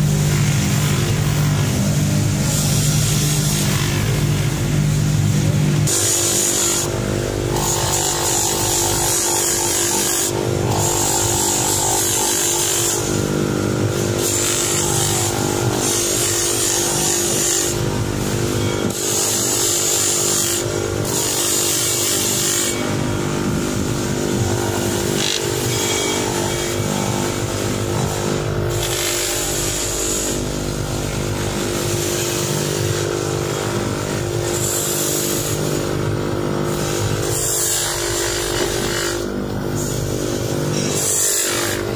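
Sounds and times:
polishing machine motor hum: 0:00.0 - 0:41.9.

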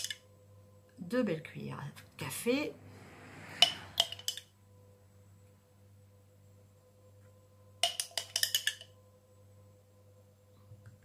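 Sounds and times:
faint steady hum: 0:00.0 - 0:11.0
teaspoon clinking in glass jar: 0:07.8 - 0:08.9.

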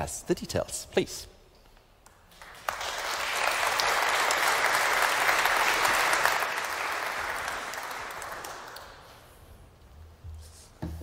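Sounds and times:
audience applauding: 0:02.3 - 0:09.2.

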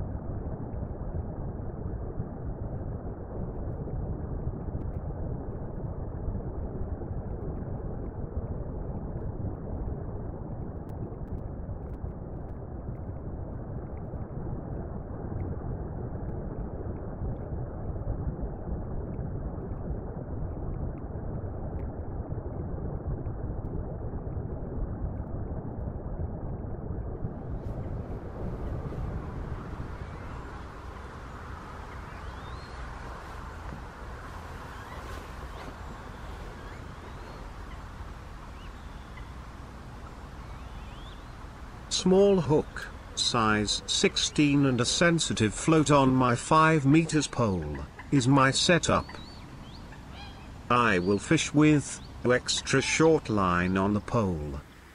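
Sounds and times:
muffled underwater rumble: 0:00.0 - 0:54.9
faint bird chirps: 0:30.0 - 0:33.0, 0:34.6 - 0:39.4, 0:40.4 - 0:41.4, 0:47.5 - 0:54.5.

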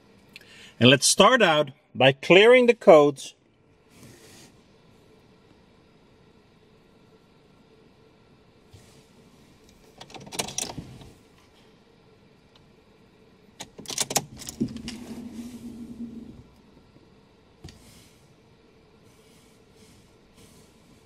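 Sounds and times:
steady hum: 0:00.0 - 0:21.0
keys clicking and jangling: 0:13.7 - 0:15.0.

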